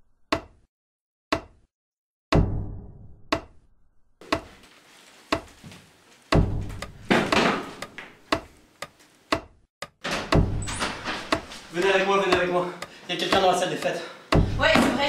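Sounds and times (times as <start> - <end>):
slow regular ticks: 7.8 - 10.4, 11.3 - 14.0.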